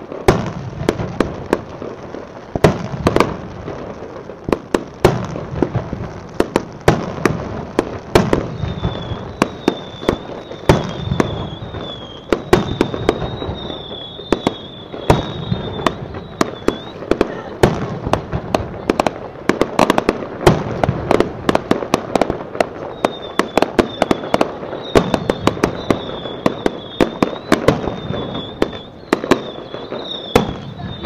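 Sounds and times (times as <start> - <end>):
fireworks bangs with rumble: 0.0 - 31.0
high wavering whistle: 8.5 - 17.1, 22.9 - 31.0.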